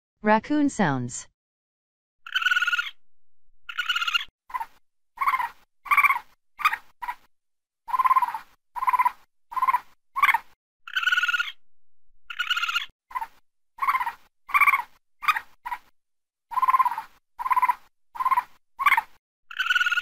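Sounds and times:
raccoon calling: 0:02.2 - 0:03.0, 0:03.7 - 0:07.3, 0:07.9 - 0:11.6, 0:12.3 - 0:15.9, 0:16.5 - 0:20.0.

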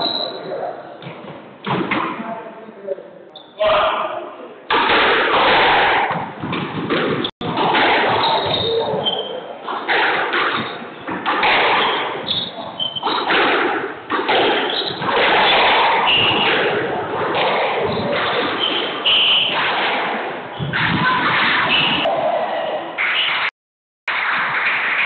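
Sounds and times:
squash ball struck by rackets: 0:04.7 - 0:08.6, 0:09.7 - 0:12.3, 0:12.9 - 0:22.0.

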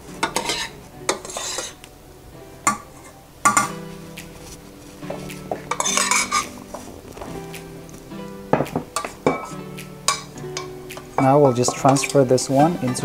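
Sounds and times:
background music: 0:00.0 - 0:13.0
utensil scraping a saucepan: 0:00.2 - 0:01.8, 0:05.6 - 0:06.6, 0:09.0 - 0:13.0.

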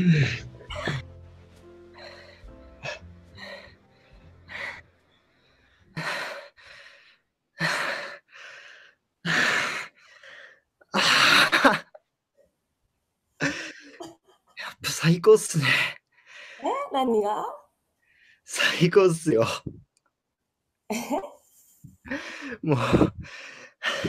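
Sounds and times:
background music: 0:00.0 - 0:06.2
man gasping and exhaling: 0:01.9 - 0:04.8, 0:21.9 - 0:24.0.

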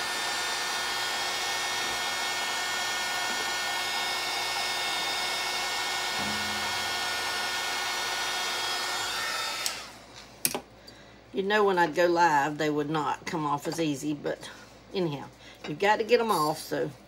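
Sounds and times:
heat gun blowing air: 0:00.0 - 0:10.0
thin motor whine: 0:00.0 - 0:10.0.

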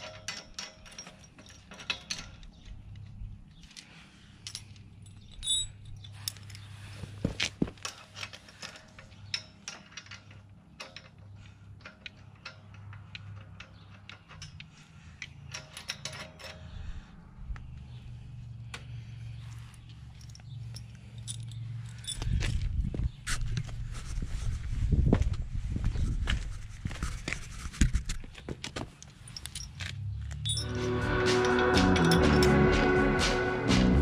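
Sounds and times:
metal nuts clicking and clinking: 0:00.0 - 0:06.7, 0:07.7 - 0:16.8, 0:19.8 - 0:22.6, 0:28.9 - 0:32.7.

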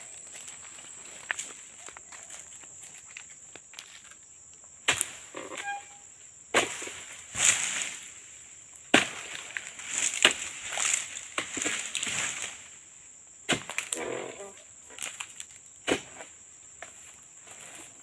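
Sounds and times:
high insect drone: 0:00.0 - 0:18.0
sickle chopping strokes: 0:04.9 - 0:05.7, 0:06.5 - 0:08.0, 0:08.9 - 0:12.6, 0:13.5 - 0:13.9, 0:15.8 - 0:16.3
rustle of fronds: 0:06.6 - 0:13.0.

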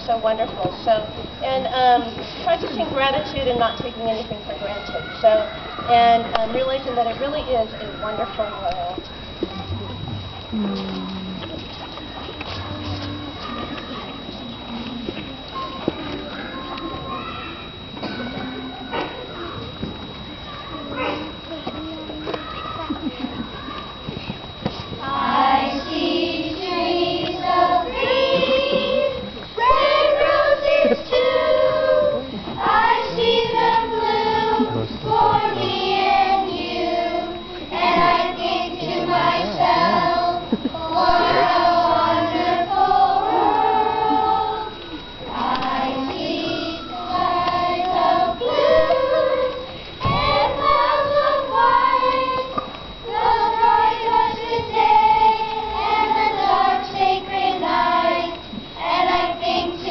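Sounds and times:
children's choir singing: 0:24.9 - 0:59.9.

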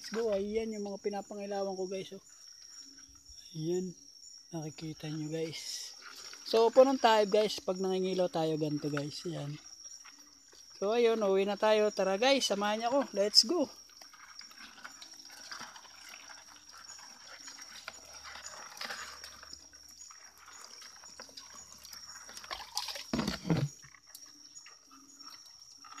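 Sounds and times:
water sloshing and knocking: 0:21.1 - 0:23.8.

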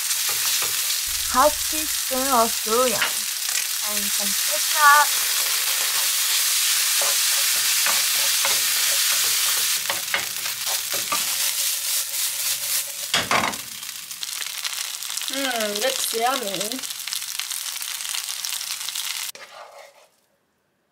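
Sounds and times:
fried rice sizzling in a pan: 0:00.0 - 0:20.0
spatula scraping a pan: 0:00.1 - 0:01.0, 0:04.7 - 0:13.2, 0:19.3 - 0:20.2.

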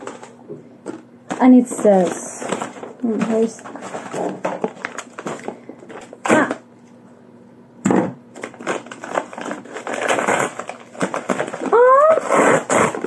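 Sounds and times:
tissue paper rustling: 0:01.4 - 0:06.3, 0:08.4 - 0:13.0.

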